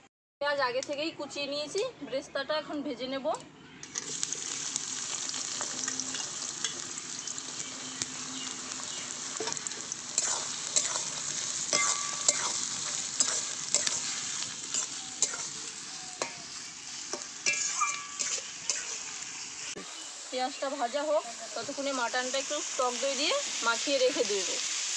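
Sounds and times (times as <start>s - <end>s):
metal spatula scraping a pan: 3.9s - 7.4s, 8.4s - 19.2s
onions sizzling in hot oil: 3.9s - 24.9s.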